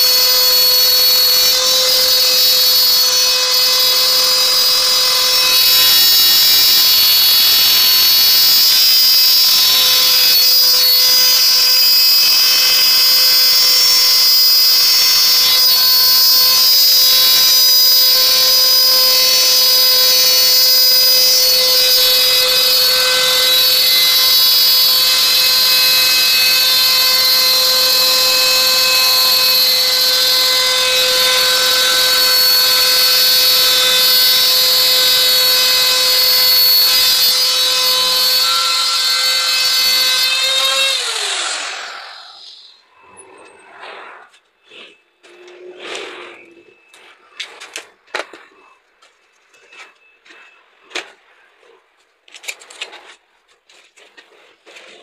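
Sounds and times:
router high whine milling metal: 0:00.0 - 0:43.7.

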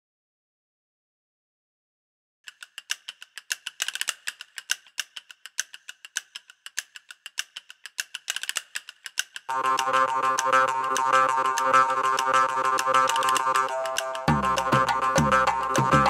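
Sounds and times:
light even ticking: 0:02.5 - 0:16.0
droning chord: 0:09.5 - 0:16.0.

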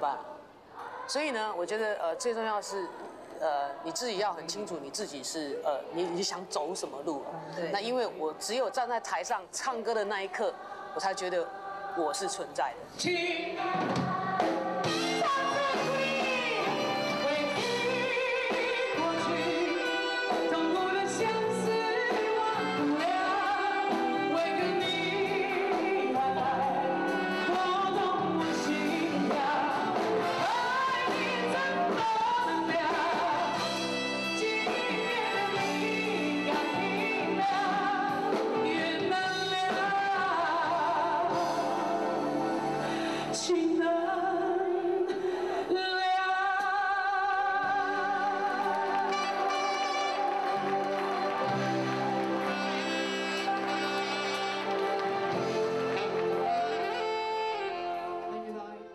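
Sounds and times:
woman singing a slow ballad: 0:13.0 - 0:42.2, 0:43.2 - 0:50.7
live band accompaniment: 0:13.6 - 0:43.9, 0:46.5 - 0:58.9.

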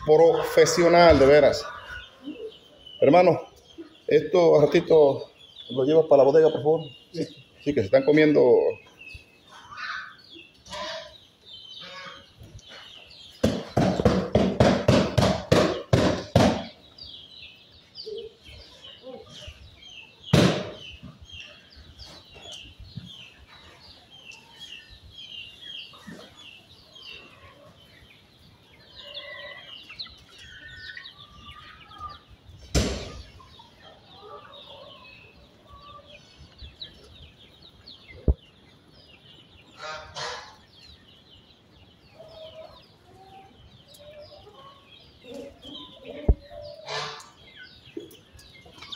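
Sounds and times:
chickens clucking: 0:00.0 - 0:48.9
loud knocks: 0:13.4 - 0:16.8, 0:20.3 - 0:20.9, 0:32.7 - 0:33.2.

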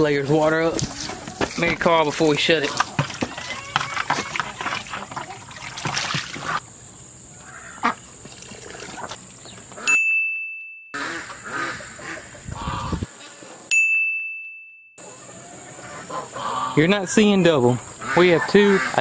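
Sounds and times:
hose water running into container: 0:00.2 - 0:06.6, 0:08.2 - 0:09.4
single-pitch dings: 0:09.9 - 0:11.0, 0:13.7 - 0:15.0.

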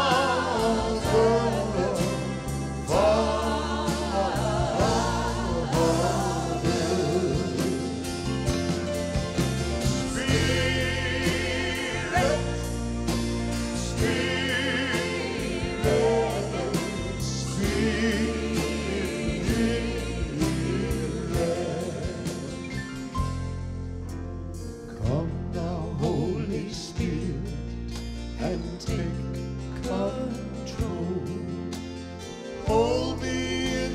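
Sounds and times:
voices singing wordless notes: 0:00.0 - 0:23.1, 0:32.6 - 0:33.9
organ sustained chords: 0:00.0 - 0:24.5
piano playing: 0:00.0 - 0:33.9.

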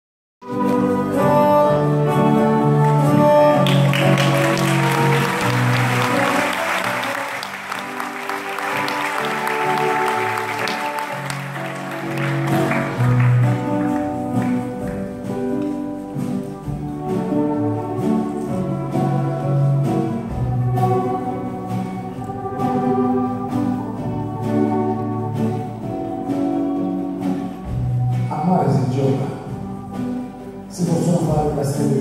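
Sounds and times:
acoustic band playing: 0:00.4 - 0:32.0
audience applauding: 0:02.8 - 0:15.8.

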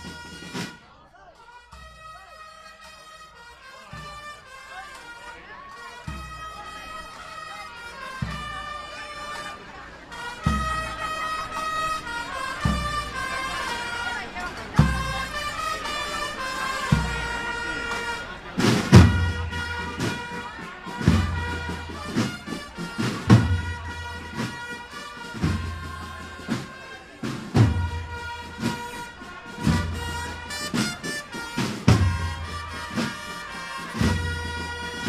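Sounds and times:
wind instruments holding notes: 0:00.0 - 0:35.0
bass drum beats: 0:18.6 - 0:20.3, 0:27.4 - 0:35.0.

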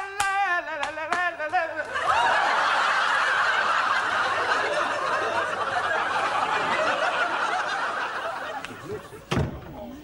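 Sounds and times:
studio audience laughing: 0:01.8 - 0:09.3.

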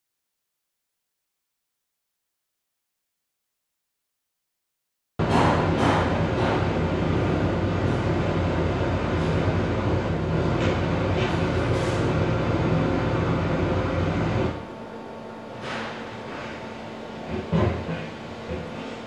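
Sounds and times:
loud rumbling drone: 0:05.2 - 0:14.8.

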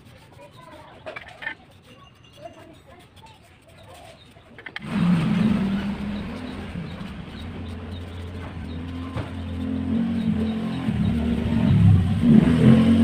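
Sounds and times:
motor vehicle engine running: 0:04.6 - 0:13.0.

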